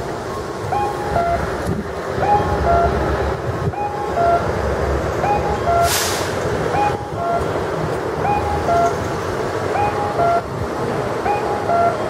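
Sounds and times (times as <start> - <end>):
traffic and street noise: 0.0 - 12.0
two-tone crossing signal call: 0.3 - 1.6, 2.2 - 4.6, 5.2 - 5.9, 6.7 - 7.6, 8.2 - 9.1, 9.7 - 10.6, 11.2 - 12.0.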